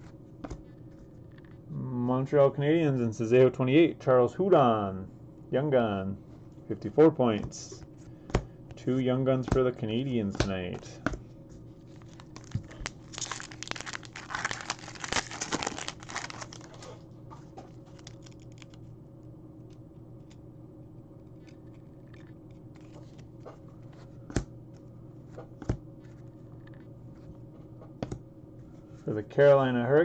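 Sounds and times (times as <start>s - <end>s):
wrapper tearing and crinkling: 11.9s - 17.0s, 17.7s - 18.8s.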